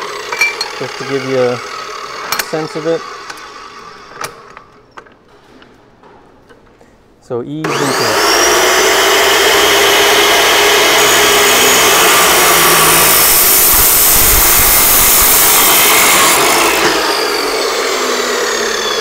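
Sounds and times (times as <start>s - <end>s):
saw motor whine spinning down: 7.6s - 19.0s
saw wheel grinding through steel: 7.7s - 19.0s.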